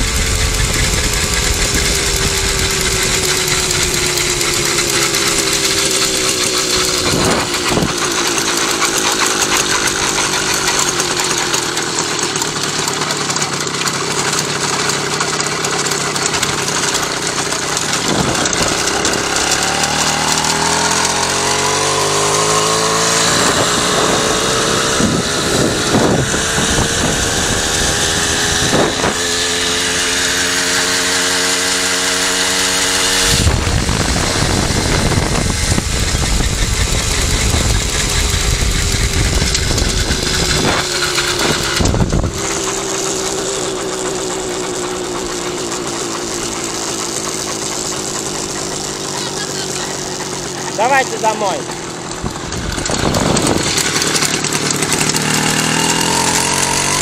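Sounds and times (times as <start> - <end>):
loud low rushing noise: 0.0 - 8.5, 32.8 - 43.4
moped engine running: 0.0 - 57.0.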